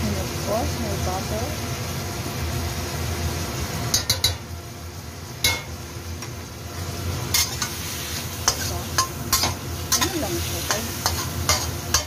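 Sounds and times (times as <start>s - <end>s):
metal utensil clicking on wok: 3.9s - 4.4s, 8.4s - 12.0s.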